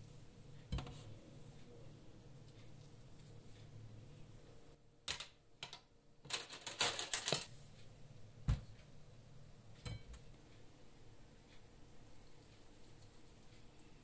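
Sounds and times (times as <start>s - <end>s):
metal skewers clicking and clattering: 6.3s - 7.5s.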